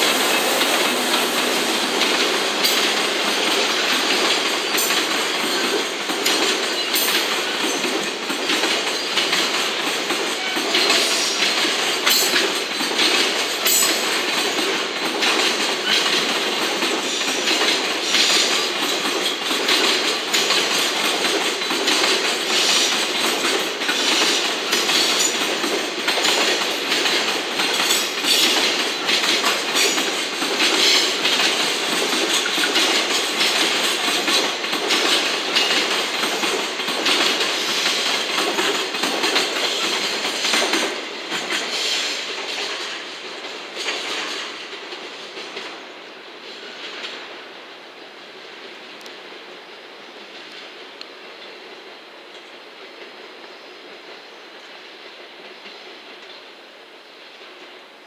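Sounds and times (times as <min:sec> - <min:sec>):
wheels clacking over rail joints: 0:00.0 - 0:45.9
freight train wheels rumbling: 0:00.0 - 0:58.0.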